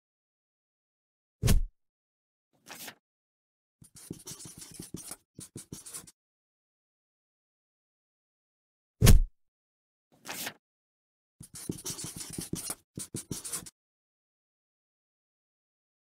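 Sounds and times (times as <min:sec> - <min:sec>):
rapid scratching and clicking: 0:11.4 - 0:13.7.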